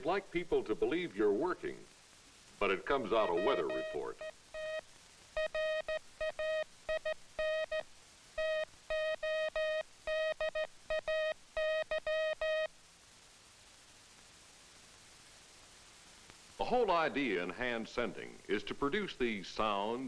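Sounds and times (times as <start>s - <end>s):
morse code tone: 3.0s - 4.8s, 5.4s - 7.8s, 8.4s - 12.7s.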